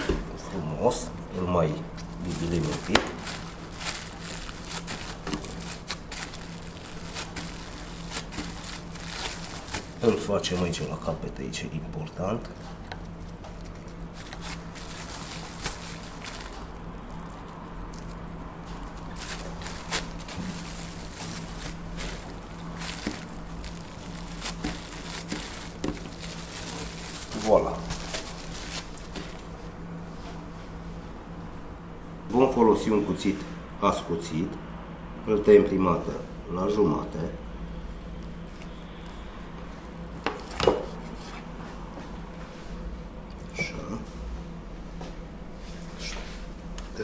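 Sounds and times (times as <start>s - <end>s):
steady low hum: 0.0s - 47.0s
plastic film crinkling: 1.9s - 11.2s, 12.4s - 29.5s, 38.1s - 41.5s.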